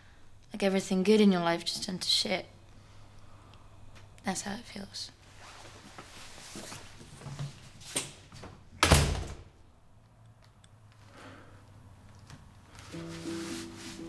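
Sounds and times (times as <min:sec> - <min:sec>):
door slamming shut: 0:08.8 - 0:09.5
rustling: 0:12.2 - 0:14.0.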